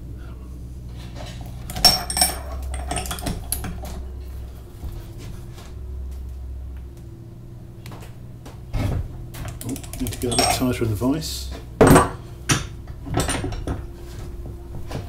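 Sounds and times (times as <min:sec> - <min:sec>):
low steady hum: 0:00.0 - 0:15.0
wrench clinking on nut: 0:01.7 - 0:03.8, 0:09.5 - 0:10.6.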